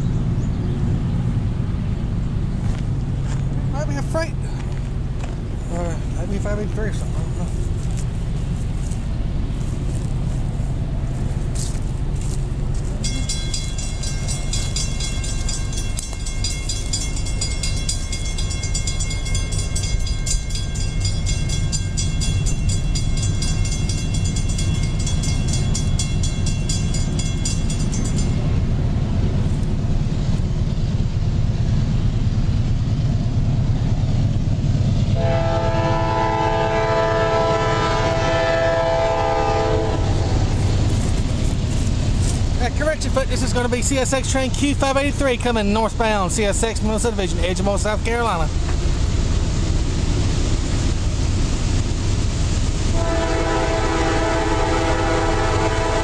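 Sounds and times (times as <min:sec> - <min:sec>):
crossing warning bell ringing: 0:11.6 - 0:29.8, 0:35.2 - 0:56.0
locomotive air horn chord: 0:35.2 - 0:40.6, 0:52.9 - 0:56.0.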